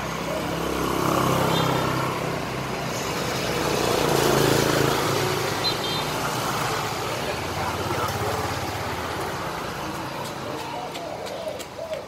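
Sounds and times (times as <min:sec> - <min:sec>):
passing road traffic: 0:00.0 - 0:12.0.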